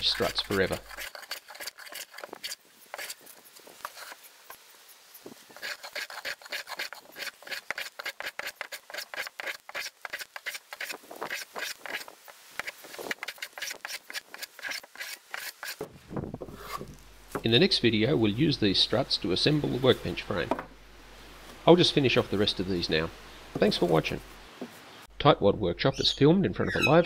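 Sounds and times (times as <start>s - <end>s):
hand plane shaving wood: 0.0s - 3.2s, 5.6s - 12.0s, 12.6s - 15.8s.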